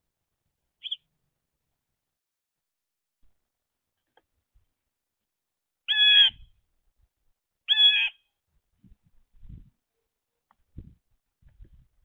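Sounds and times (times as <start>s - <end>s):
blue jay harsh calls: 0.8s - 1.0s, 5.8s - 6.4s, 7.7s - 8.3s.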